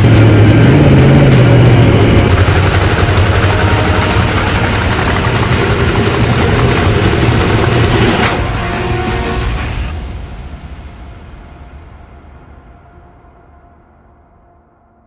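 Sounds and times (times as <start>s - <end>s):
monster truck engine running: 0.0s - 8.4s
fast even rattle: 2.3s - 8.3s.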